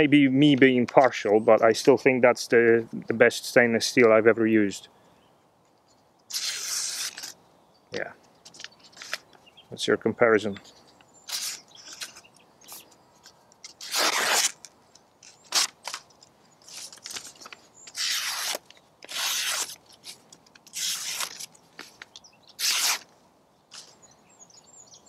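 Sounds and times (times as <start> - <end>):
knife slicing paper: 6.3 - 7.4, 11.3 - 12.2, 13.7 - 14.6, 15.2 - 16.0, 16.6 - 21.6, 22.6 - 23.1.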